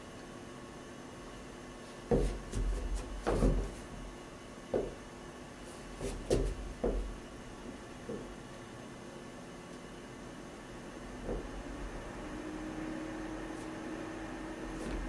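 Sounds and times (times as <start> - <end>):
dull knocks and thumps: 2.0 - 3.9, 4.7 - 5.0, 6.0 - 8.3, 11.2 - 11.8.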